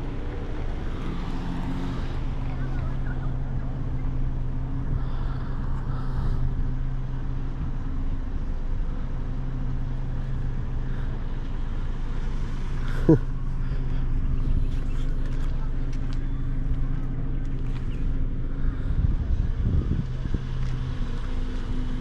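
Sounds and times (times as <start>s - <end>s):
car road and engine noise: 0.0s - 22.0s.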